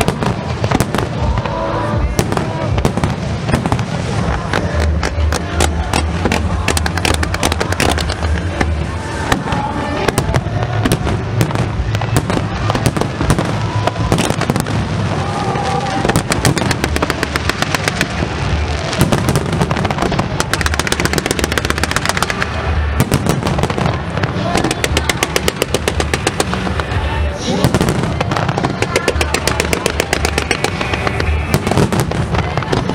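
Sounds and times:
fireworks bangs and crackles: 0.0s - 32.9s.

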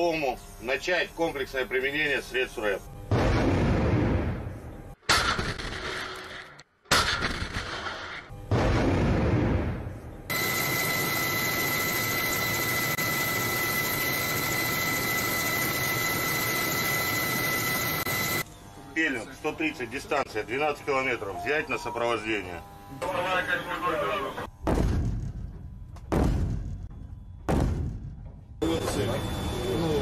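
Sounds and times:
weapons firing blasts: 3.1s - 10.0s, 24.6s - 25.5s, 26.1s - 26.9s, 27.5s - 28.2s.

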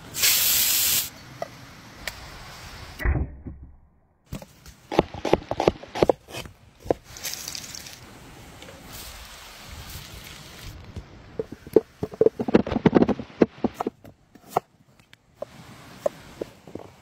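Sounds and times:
soft steady hiss: 0.0s - 3.0s, 6.5s - 17.0s.

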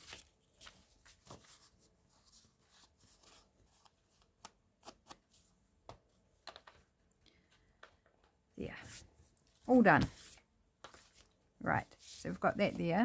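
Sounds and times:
paper rustling: 0.0s - 5.4s, 8.9s - 13.0s.

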